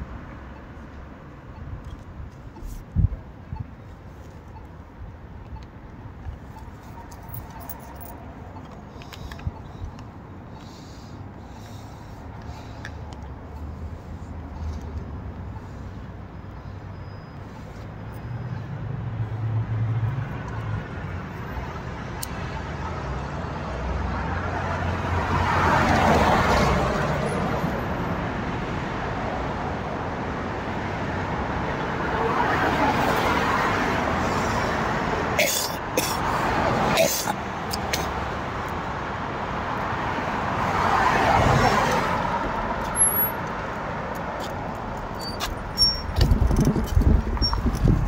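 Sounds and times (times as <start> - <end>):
cars driving by: 0.0 - 48.0
tyre noise: 44.4 - 48.0.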